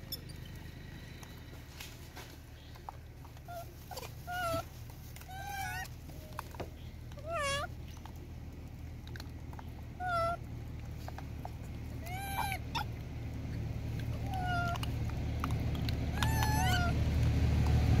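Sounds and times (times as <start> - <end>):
monkeys crying: 3.5 - 6.0, 7.1 - 7.8, 10.0 - 10.4, 11.9 - 15.5, 16.1 - 17.1.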